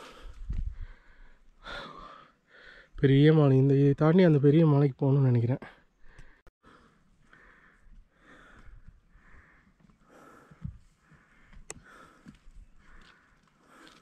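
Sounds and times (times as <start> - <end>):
person breathing hard: 0.0 - 3.0, 6.0 - 14.0.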